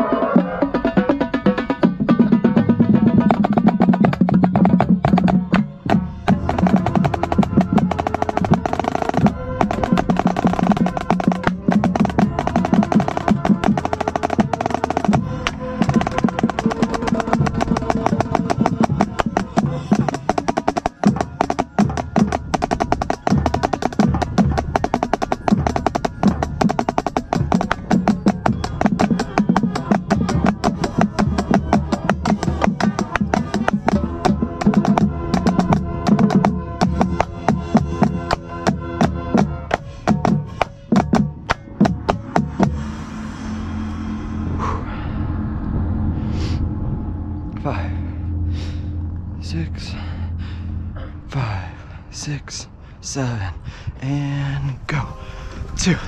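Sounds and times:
marching snare drum rolls: 0:00.0 - 0:42.8
drum line: 0:00.0 - 0:42.9
sustained pitched ensemble notes: 0:00.0 - 0:53.1.

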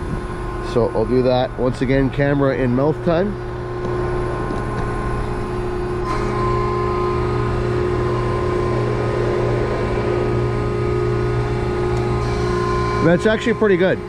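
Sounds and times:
hydraulic system hum and whine: 0:00.0 - 0:14.0.

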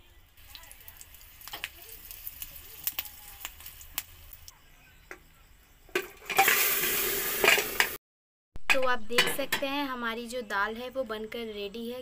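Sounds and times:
oil crackling in pan: 0:00.3 - 0:04.6
loud sizzle of oil poured: 0:00.4 - 0:04.5, 0:06.2 - 0:08.0.

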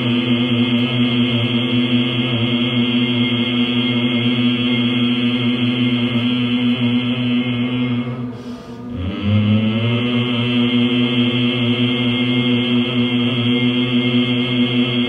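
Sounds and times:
person chanting a low hum: 0:00.0 - 0:15.0.

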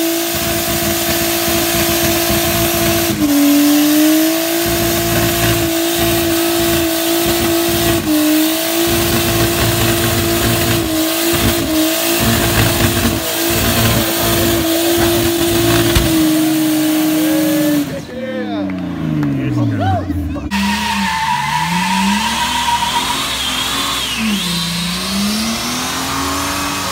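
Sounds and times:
tyres spinning on pavement: 0:00.0 - 0:18.2
car engine revving high: 0:00.0 - 0:26.9.

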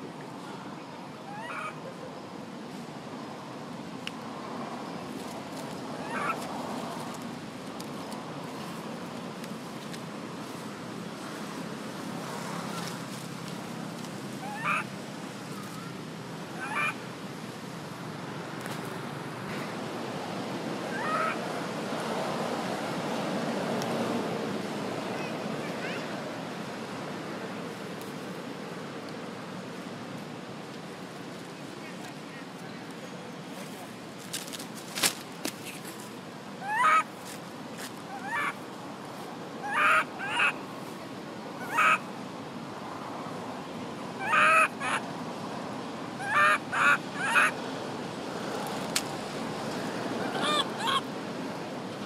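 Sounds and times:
steady background hiss: 0:00.0 - 0:52.0
monkey squealing cries: 0:01.3 - 0:01.8, 0:06.0 - 0:06.4, 0:14.4 - 0:14.9, 0:16.6 - 0:17.0, 0:20.9 - 0:21.4, 0:36.6 - 0:37.1, 0:38.1 - 0:38.6, 0:39.6 - 0:40.6, 0:41.6 - 0:42.0, 0:44.2 - 0:45.0, 0:46.2 - 0:47.6, 0:50.2 - 0:51.1
baby monkey shrill wails: 0:14.4 - 0:14.9, 0:20.9 - 0:21.4, 0:36.6 - 0:37.0, 0:50.3 - 0:51.0.

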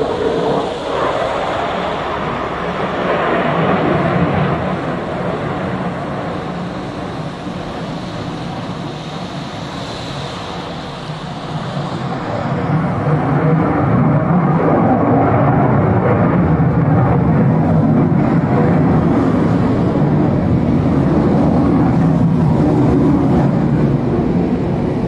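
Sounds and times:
jet aircraft engine rumble: 0:00.0 - 0:25.0.

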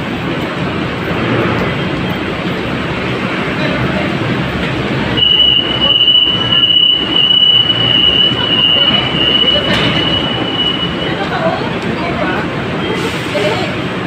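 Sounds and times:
station low rumble: 0:00.0 - 0:12.8
train high-pitched whine: 0:05.1 - 0:11.6.

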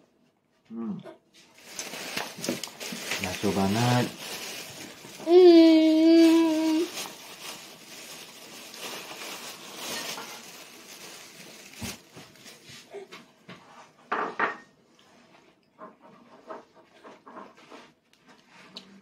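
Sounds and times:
tableware clattering: 0:09.9 - 0:10.5, 0:14.1 - 0:14.7.

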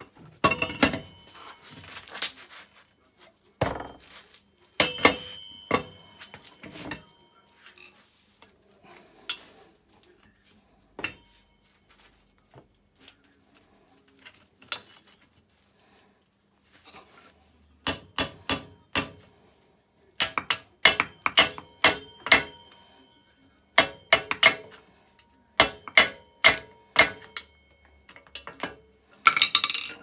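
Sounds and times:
metal knocks and clinks: 0:00.4 - 0:01.8, 0:23.8 - 0:30.0.

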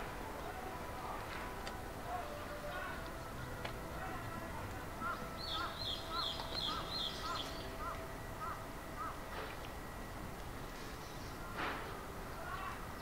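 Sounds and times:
higher-pitched bird call: 0:05.0 - 0:09.2.

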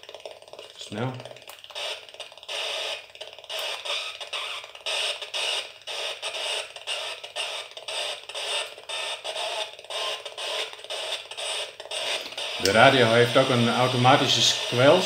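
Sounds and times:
radio static bursts: 0:00.9 - 0:15.0
radio hiss between stations: 0:10.6 - 0:15.0.

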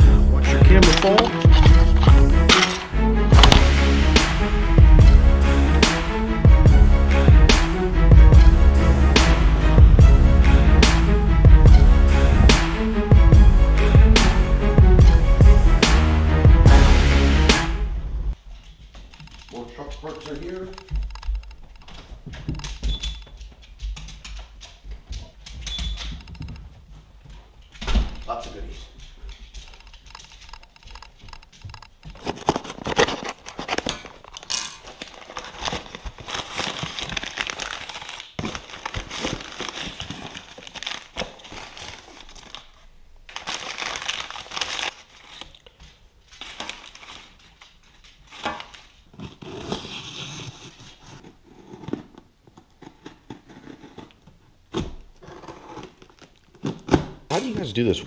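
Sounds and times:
plastic bags crinkling and tearing: 0:31.7 - 0:50.8.

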